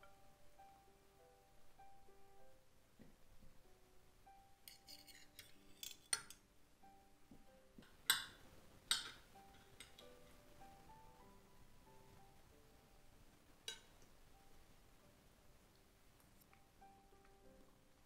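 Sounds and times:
quiet background music: 0.0s - 18.0s
cutlery clinking on a plate: 4.7s - 6.4s, 7.8s - 10.2s, 13.7s - 14.0s.

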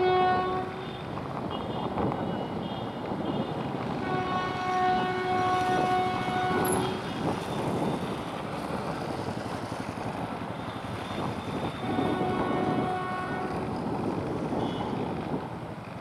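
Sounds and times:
train horn blast: 0.0s - 1.8s, 3.3s - 7.1s, 11.7s - 13.7s.

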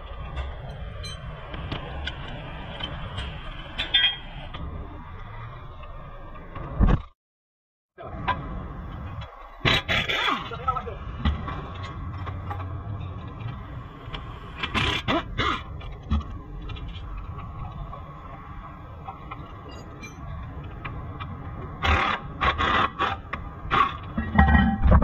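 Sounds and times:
workshop background hum: 0.0s - 7.1s, 8.0s - 25.0s
tools clattering: 24.1s - 25.0s.

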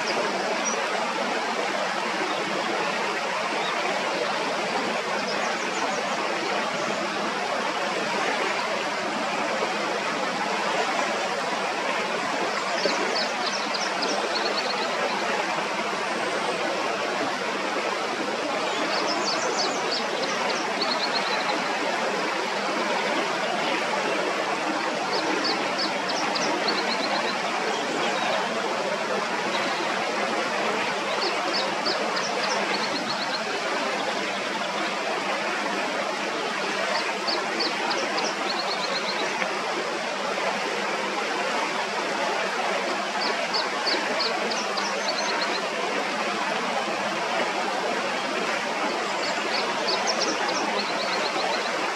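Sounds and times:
river water over rocks: 0.0s - 51.9s.

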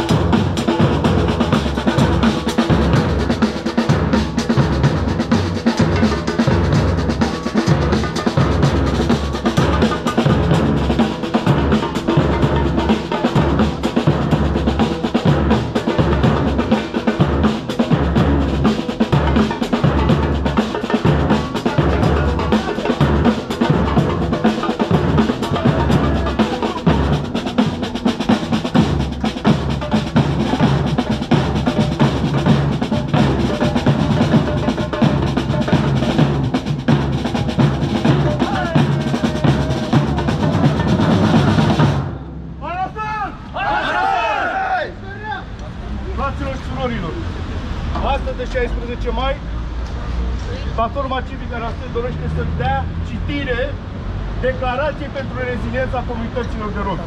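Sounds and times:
snare drums: 0.0s - 42.7s
bass drums beaten with mallets: 0.0s - 42.8s.

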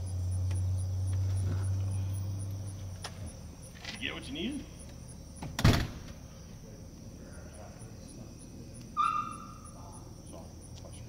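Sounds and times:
siren rotor low drone: 0.0s - 5.4s
insects ticking: 0.0s - 11.0s.

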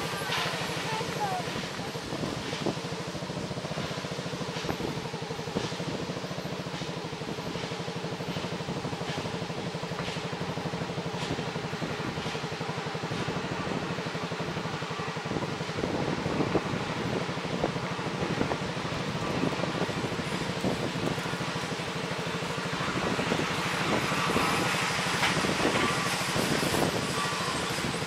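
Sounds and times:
small engine running: 0.0s - 28.0s.

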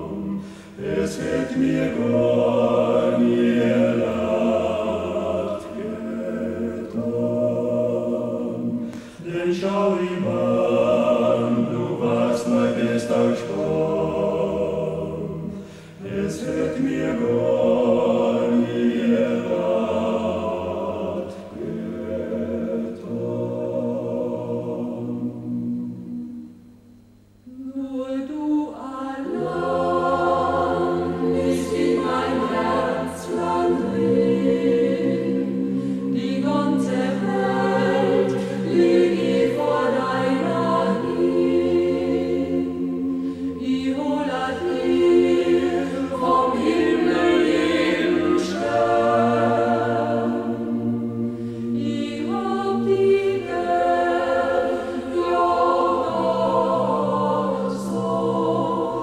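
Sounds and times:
mixed choir singing a cappella: 0.0s - 26.7s, 27.4s - 59.0s.

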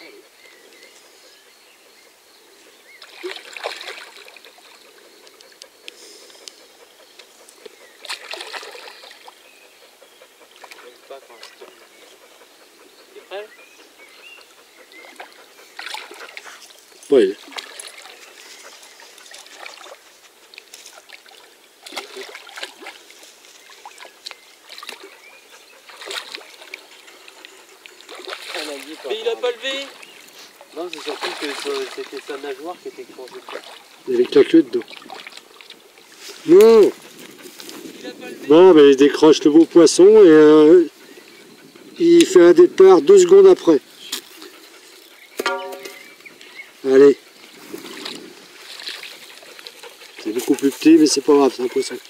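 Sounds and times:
water splashing and lapping: 2.9s - 12.5s, 14.3s - 38.2s, 41.0s - 52.0s
fish splashing in water: 3.0s - 4.8s, 8.0s - 9.4s, 15.1s - 16.6s, 17.4s - 18.3s, 19.3s - 20.0s, 20.9s - 25.1s, 25.9s - 27.0s, 28.0s - 29.1s, 30.9s - 32.5s, 33.3s - 34.0s, 34.8s - 35.8s, 47.8s - 50.2s.

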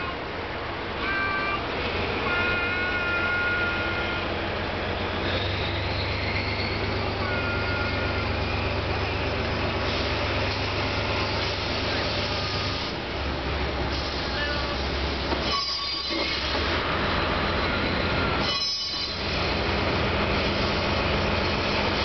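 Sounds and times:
locomotive diesel engine drone: 0.0s - 22.0s
wheels squealing on curve: 15.4s - 16.7s.

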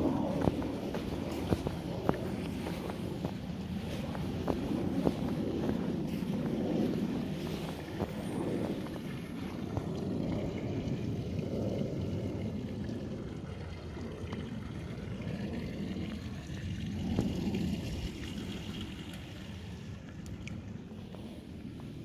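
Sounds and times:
footsteps crunching in snow: 0.0s - 9.8s
wind on microphone: 0.0s - 22.0s.

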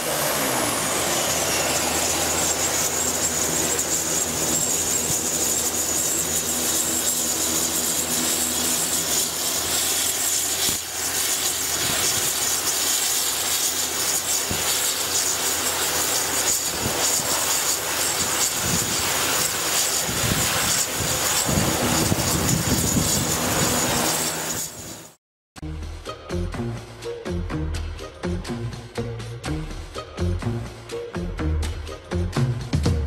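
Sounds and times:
high turbine whine: 0.0s - 25.2s
turboprop engines roaring: 0.0s - 25.2s.

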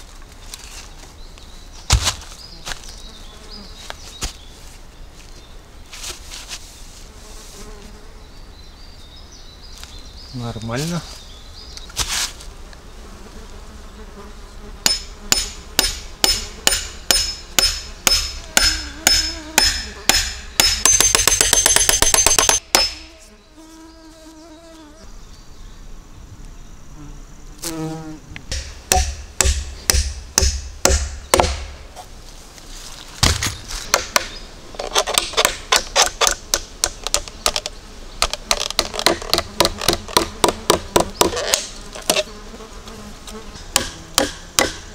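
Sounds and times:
bumblebee buzzing: 6.8s - 8.7s, 12.2s - 21.1s, 22.1s - 25.1s, 26.9s - 32.0s, 35.6s - 44.9s
dull thuds: 33.2s - 34.4s.

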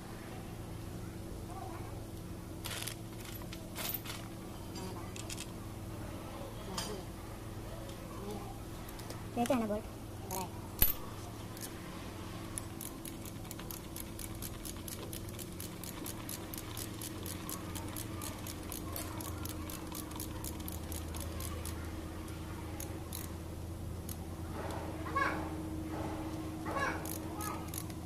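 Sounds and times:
steady low hum: 0.0s - 28.0s
light metallic clicks of tools: 22.8s - 23.4s.

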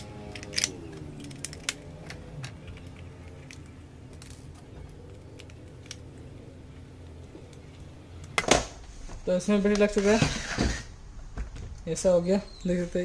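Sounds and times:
plastic clicks and rattles: 0.3s - 6.3s.

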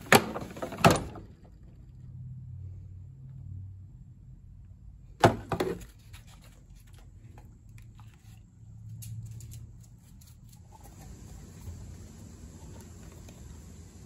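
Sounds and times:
metal tool chest drawer clatter: 0.0s - 1.3s.

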